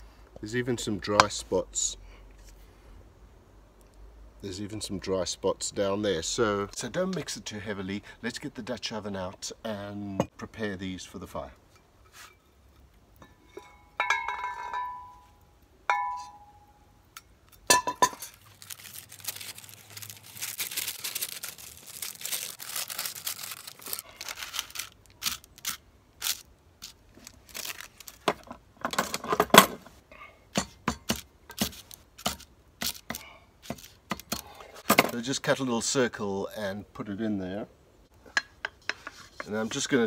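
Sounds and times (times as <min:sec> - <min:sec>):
baking paper rustling: 0:18.1 - 0:28.4.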